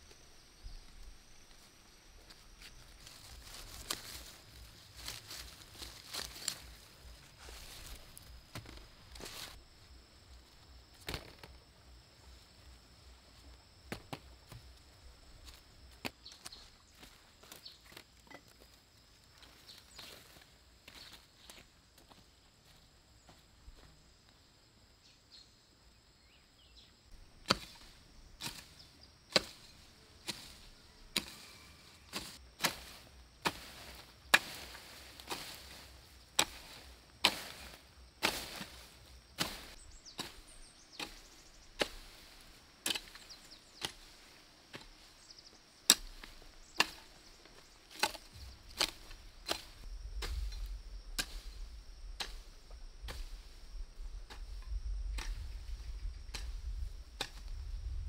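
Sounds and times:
hoe chopping into soil: 0:27.4 - 0:45.1, 0:45.8 - 0:51.6, 0:52.2 - 0:53.5, 0:54.3 - 0:55.4, 0:56.3 - 0:57.6.

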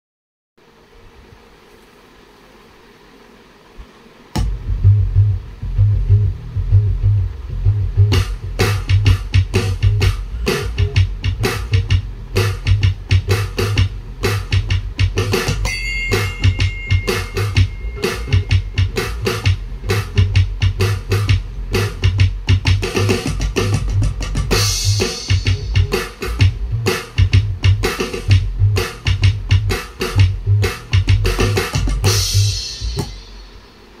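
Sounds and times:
electronic drum kick and snare: 0:04.4 - 0:33.7
high two-note tone: 0:15.6 - 0:19.0.

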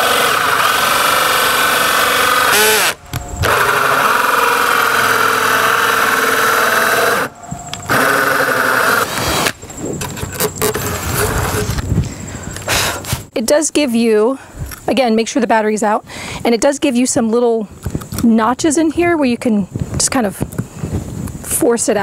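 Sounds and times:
cordless drill with hole saw: 0:00.0 - 0:09.6.

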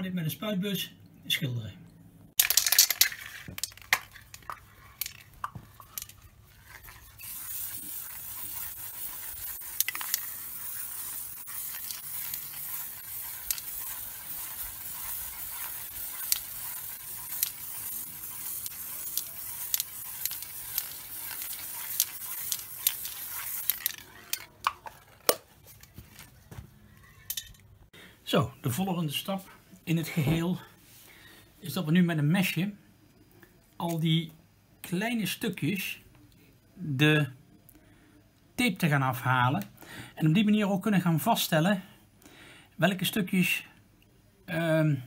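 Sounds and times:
spray can hissing: 0:02.4 - 0:24.5.

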